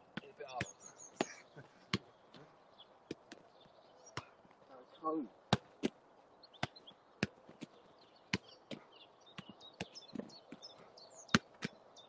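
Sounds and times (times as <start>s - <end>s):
football being kicked: 0.1s - 1.3s, 1.9s - 2.1s, 4.2s - 4.4s, 5.5s - 6.0s, 6.6s - 7.7s, 8.3s - 8.8s, 9.4s - 10.6s, 11.3s - 11.8s.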